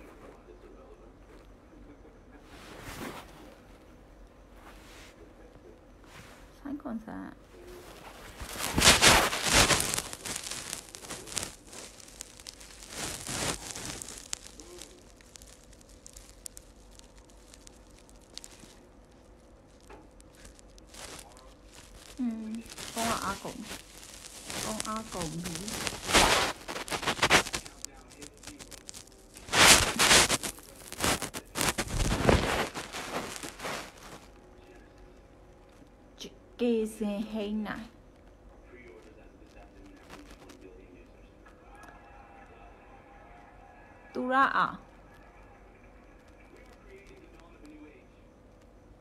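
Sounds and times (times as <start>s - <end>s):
handling noise on phone microphone: 2.5s - 6.5s, 7.6s - 34.4s, 39.9s - 40.6s.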